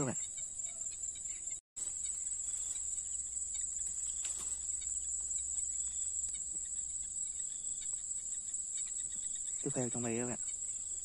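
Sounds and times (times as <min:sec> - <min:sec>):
night insects chorus: 0:00.0 - 0:11.0
faint ticks: 0:03.5 - 0:09.7.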